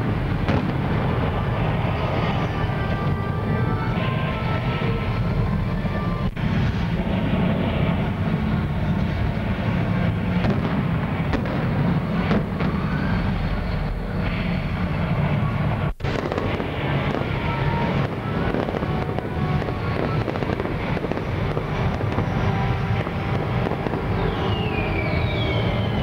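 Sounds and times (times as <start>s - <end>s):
fireworks rumbling and crackling: 0.0s - 26.0s
falling whistle: 12.6s - 14.6s, 23.8s - 26.0s.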